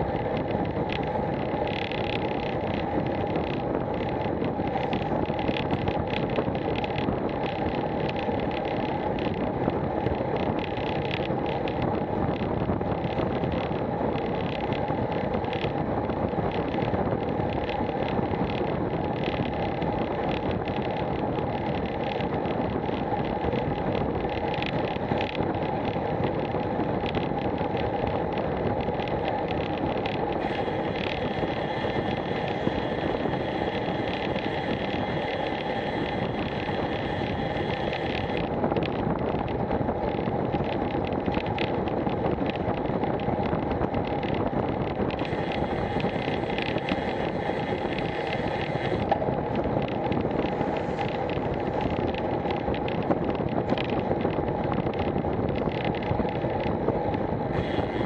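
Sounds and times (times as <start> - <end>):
bike tyres on tarmac: 0.0 - 58.0
wind rushing over microphone: 0.0 - 58.0.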